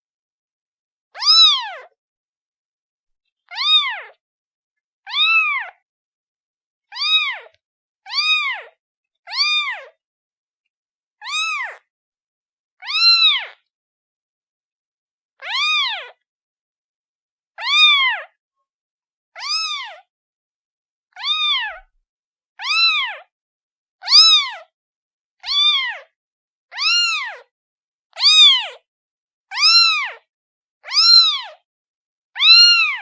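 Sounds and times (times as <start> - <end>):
kitten meowing: 1.2 - 2.0, 3.5 - 4.2, 5.1 - 5.8, 6.9 - 10.0, 11.2 - 11.9, 12.8 - 13.6, 15.4 - 16.2, 17.6 - 18.3, 19.4 - 20.1, 21.1 - 21.9, 22.6 - 23.3, 24.0 - 24.7, 25.4 - 26.1, 26.7 - 27.5, 28.1 - 28.8, 29.5 - 31.6, 32.4 - 33.0.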